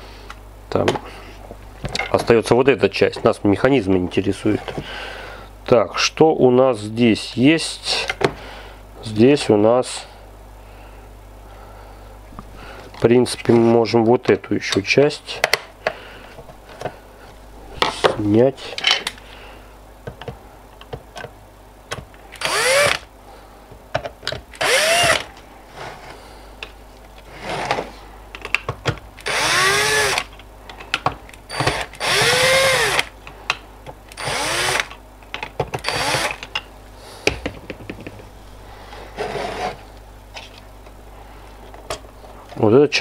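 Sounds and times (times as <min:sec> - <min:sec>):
cordless drill motor whine: 0:22.4 - 0:23.1, 0:24.6 - 0:25.3, 0:29.2 - 0:30.3, 0:31.5 - 0:33.1, 0:34.1 - 0:35.0, 0:35.8 - 0:36.4.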